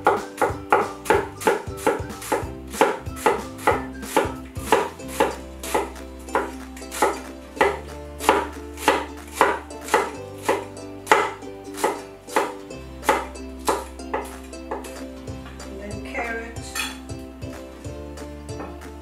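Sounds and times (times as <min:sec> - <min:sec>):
cleaver chopping on wooden board: 0:00.0 - 0:14.8
soft background music: 0:00.0 - 0:19.0.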